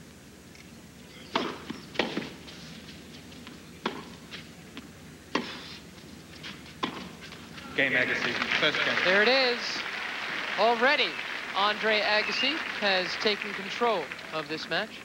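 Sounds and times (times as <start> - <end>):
tennis ball bouncing: 1.3 - 2.4, 3.4 - 5.7, 6.4 - 7.4
racket hitting tennis ball: 1.3 - 2.5, 3.8 - 4.4, 5.3 - 5.8, 6.4 - 7.3.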